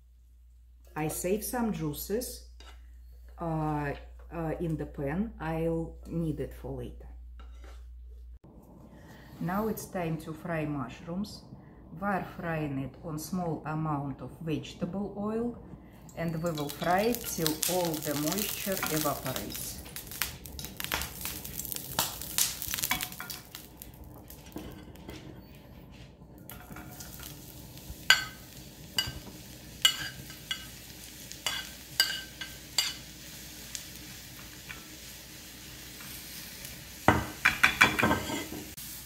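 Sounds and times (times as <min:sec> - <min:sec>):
metal spoon clinking on pan: 0:16.4 - 0:17.6, 0:28.1 - 0:30.7, 0:31.4 - 0:33.0
oil sizzling in a frying pan: 0:16.4 - 0:25.0, 0:26.5 - 0:39.0.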